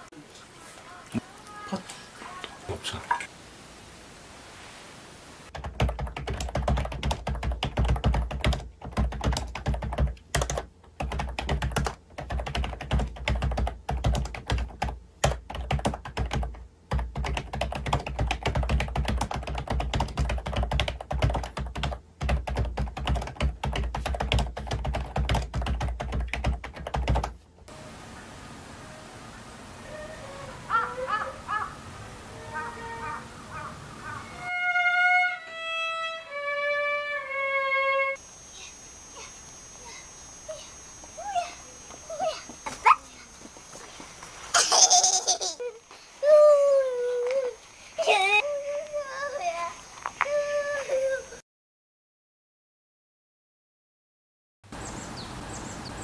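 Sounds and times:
faint steady hiss: 0.0 - 5.5, 27.4 - 51.4
fast typing on a keyboard: 5.5 - 27.4.

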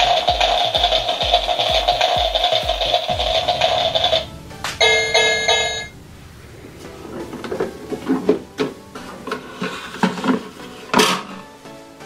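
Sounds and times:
electronic tones: 3.1 - 8.0.

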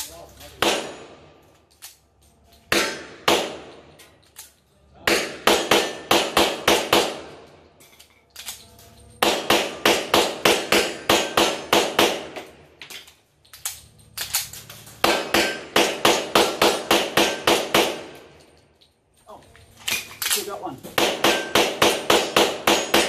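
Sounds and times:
pistol shots: 0.6 - 1.4, 2.7 - 4.0, 5.0 - 7.5, 9.2 - 12.6, 15.0 - 18.3, 20.9 - 23.0.

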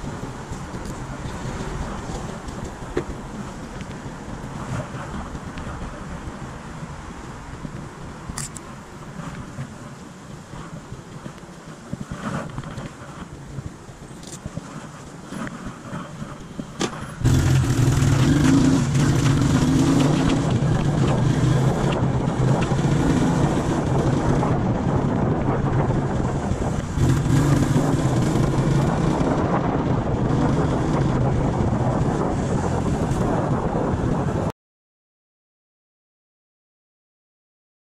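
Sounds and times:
wind on microphone: 0.0 - 34.5
motorcycle engine running: 17.0 - 34.3.

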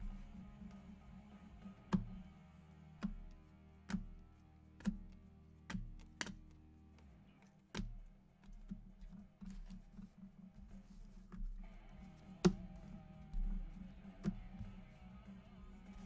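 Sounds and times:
quiet background music: 0.0 - 16.0
trading cards clicking and snapping: 3.0 - 10.2, 11.2 - 16.0.

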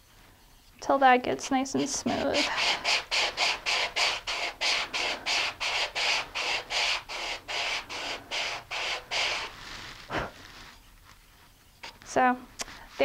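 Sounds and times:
sandpaper rubbing on wood: 1.8 - 10.8.

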